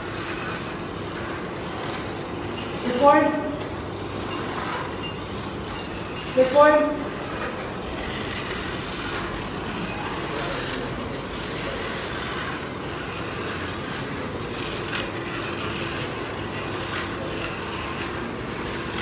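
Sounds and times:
small motors whirring: 0:00.0 - 0:19.0
faint chatter: 0:05.9 - 0:19.0.

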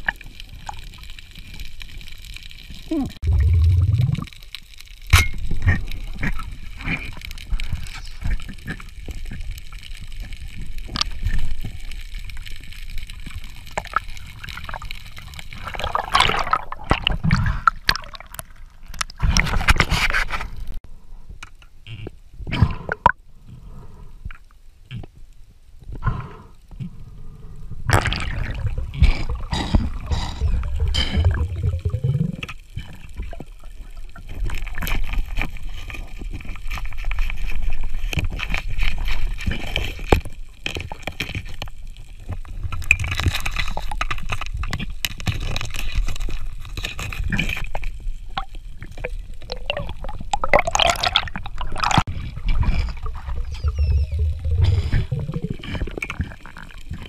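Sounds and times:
underwater bubbling and gurgling: 0:00.0 - 0:20.8, 0:21.8 - 0:57.0
low rumble: 0:03.2 - 0:04.3.

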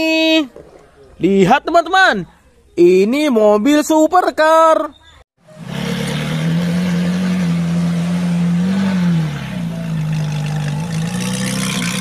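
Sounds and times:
car engine revving: 0:05.4 - 0:12.0.

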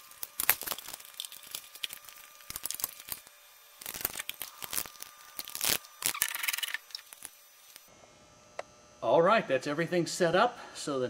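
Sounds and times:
crinkly rustling: 0:00.0 - 0:03.2.

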